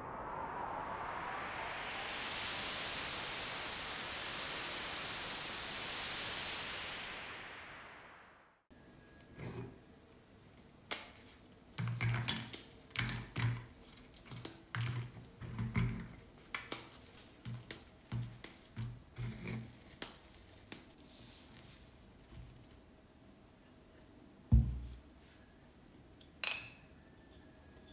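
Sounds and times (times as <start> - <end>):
biscuits cracking on a plate: 10.8 - 21.0.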